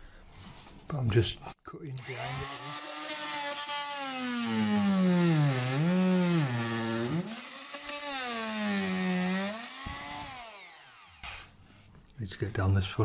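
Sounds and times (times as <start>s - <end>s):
oscillating multi-tool cutting: 2.0s - 11.6s.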